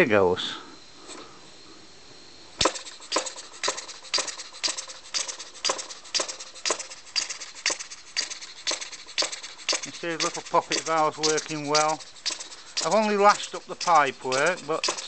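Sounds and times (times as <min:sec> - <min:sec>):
air engine exhaust puffs: 0:00.2 - 0:15.0.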